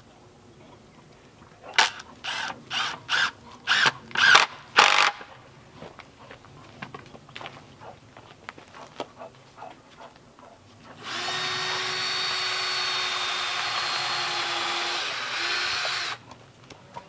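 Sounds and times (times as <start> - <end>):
cordless drill driving screw into wood: 1.8 - 5.3, 11.0 - 16.2.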